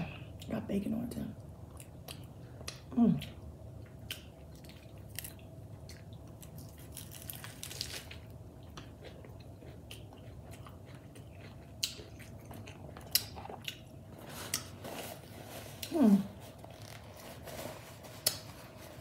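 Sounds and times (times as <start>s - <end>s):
crunchy chewing: 3.8s - 18.8s.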